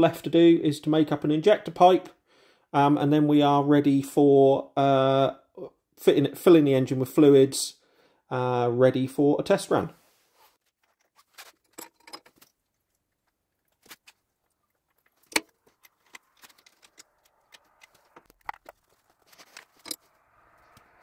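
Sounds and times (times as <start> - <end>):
spanner and fittings clinking: 11.6 - 12.5.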